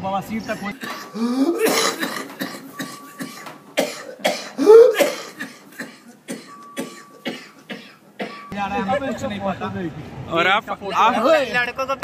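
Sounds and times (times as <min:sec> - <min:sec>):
man coughing: 0:00.5 - 0:08.5.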